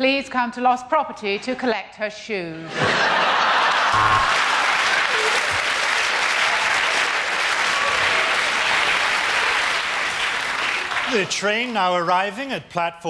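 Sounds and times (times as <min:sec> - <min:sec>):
studio audience applauding: 0:03.2 - 0:12.6.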